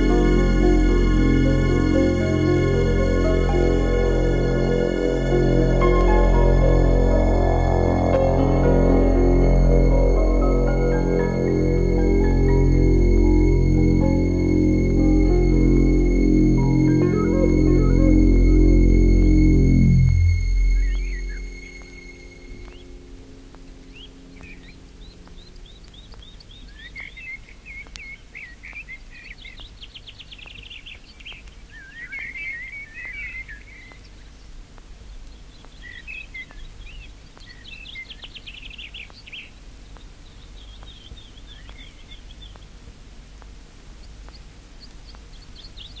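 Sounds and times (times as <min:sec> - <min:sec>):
low steady rumble: 0:00.0 - 0:23.0
songbirds trilling and chirping: 0:23.8 - 0:42.8, 0:43.9 - 0:46.0.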